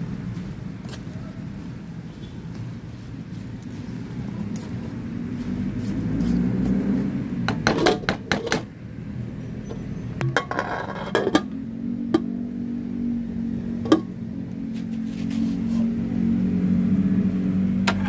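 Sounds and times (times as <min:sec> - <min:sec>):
pot lid clattering: 0:10.2 - 0:11.5, 0:13.9 - 0:14.1
spatula scraping a pan: 0:10.4 - 0:11.5.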